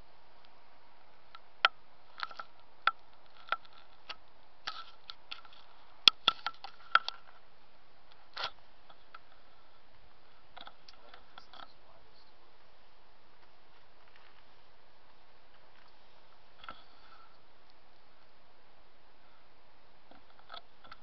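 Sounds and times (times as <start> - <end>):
low hiss: 0.0 - 21.0
sharp clicks and ticks: 1.3 - 7.3.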